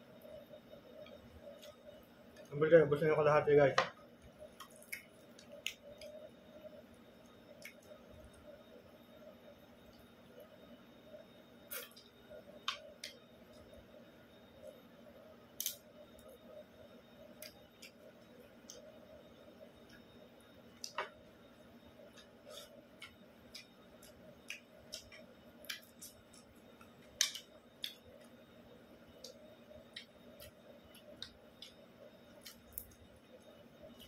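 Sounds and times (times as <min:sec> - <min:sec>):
faint steady hum: 0:00.0 - 0:34.0
chewing clicks and smacks: 0:04.6 - 0:06.2, 0:23.0 - 0:28.1.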